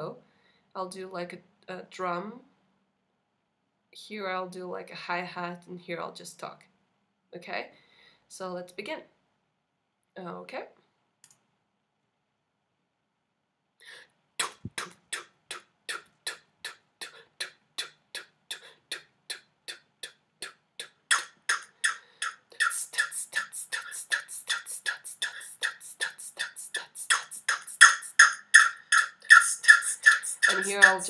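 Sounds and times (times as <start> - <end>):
beatboxed drum sounds: 14.4 - 31.0
beatboxed hi-hat: 14.4 - 31.0
looped beat through speakers: 22.6 - 31.0.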